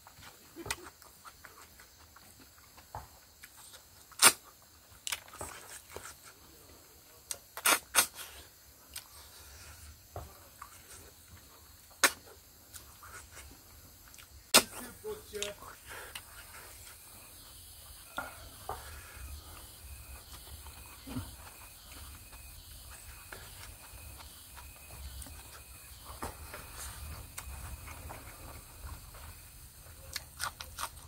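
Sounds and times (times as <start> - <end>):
lip and mouth smacks: 12.0 - 13.2
chewing clicks: 30.0 - 31.0.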